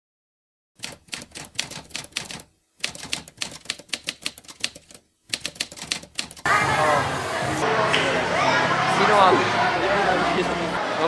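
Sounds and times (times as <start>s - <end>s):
typewriter keys clacking: 0.8s - 6.5s.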